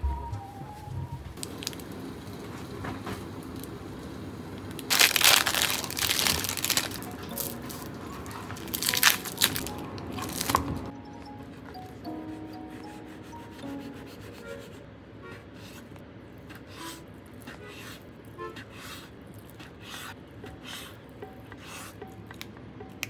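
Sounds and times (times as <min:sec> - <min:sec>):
plastic wrapping crinkling: 0:01.4 - 0:02.0, 0:04.6 - 0:10.9.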